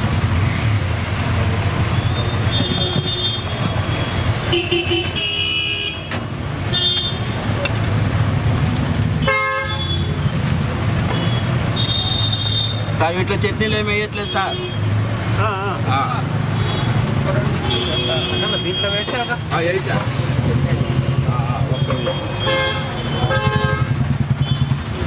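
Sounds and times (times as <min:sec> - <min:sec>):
road traffic rumbling: 0:00.0 - 0:25.0
vehicle horns tooting: 0:02.0 - 0:07.4, 0:09.2 - 0:10.2, 0:17.6 - 0:19.5, 0:21.6 - 0:24.8.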